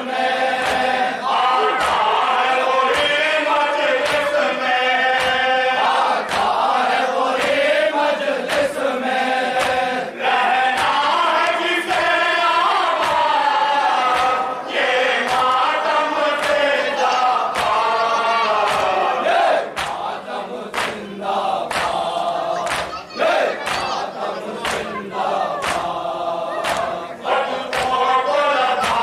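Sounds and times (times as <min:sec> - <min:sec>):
men chanting in unison: 0:00.0 - 0:29.0
hands slapping chests: 0:00.6 - 0:01.0, 0:01.8 - 0:02.1, 0:02.9 - 0:03.3, 0:04.0 - 0:04.4, 0:05.1 - 0:07.7, 0:08.4 - 0:08.8, 0:09.5 - 0:09.9, 0:10.7 - 0:12.1, 0:13.0 - 0:13.3, 0:14.0 - 0:14.5, 0:15.2 - 0:16.7, 0:17.5 - 0:28.0, 0:28.8 - 0:29.0
voice through a microphone: 0:22.3 - 0:25.7.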